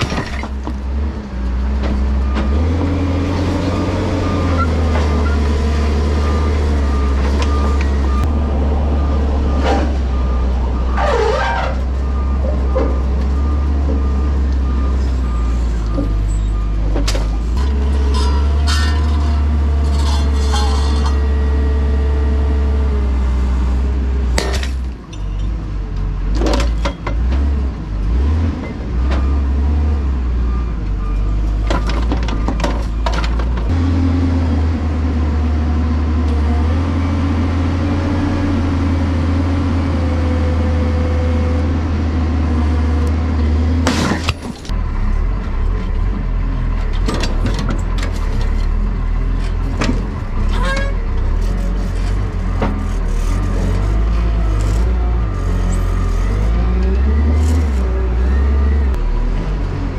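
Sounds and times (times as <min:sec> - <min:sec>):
engine and hydraulics running: 0:00.0 - 0:59.9
metal clanks of rail on rail: 0:16.9 - 0:21.2, 0:46.8 - 0:48.8.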